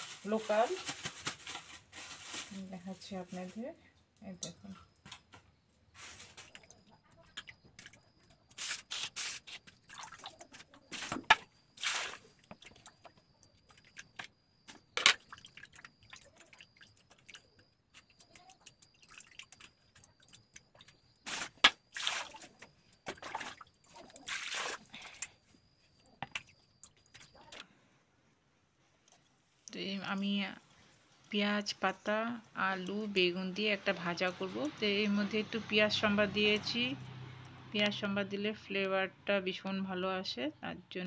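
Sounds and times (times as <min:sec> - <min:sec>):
water splashing and sloshing: 0:06.0 - 0:27.6.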